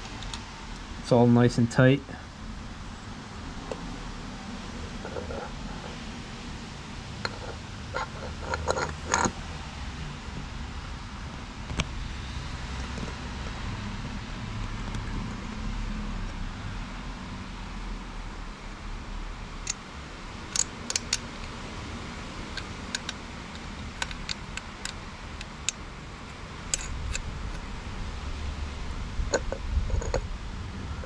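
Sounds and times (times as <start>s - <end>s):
low steady rumble: 0.0s - 31.0s
light metal clicks and taps: 7.2s - 9.3s, 20.5s - 21.6s, 22.6s - 27.7s.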